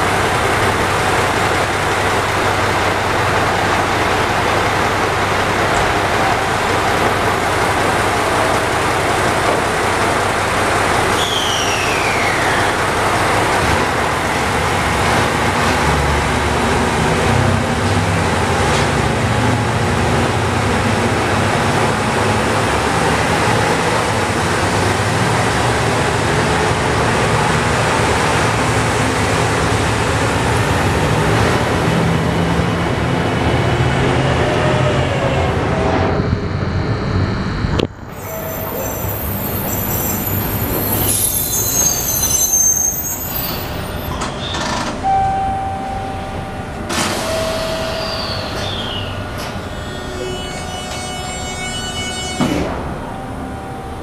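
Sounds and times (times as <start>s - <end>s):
diesel train engine drone: 0.0s - 54.0s
falling whistle: 11.2s - 12.7s, 38.1s - 44.6s, 47.3s - 49.2s.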